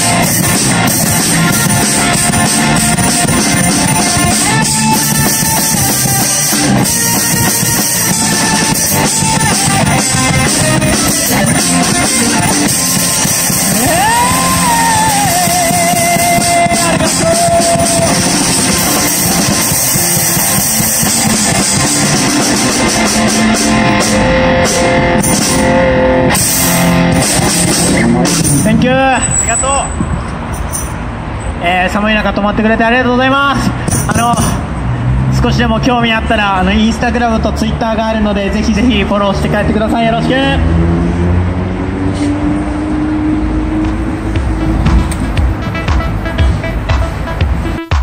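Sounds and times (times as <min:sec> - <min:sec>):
electric guitar: 0:00.0 - 0:28.9
drum kit: 0:00.0 - 0:29.0, 0:33.8 - 0:34.7, 0:43.6 - 0:48.0
person singing: 0:13.7 - 0:18.8.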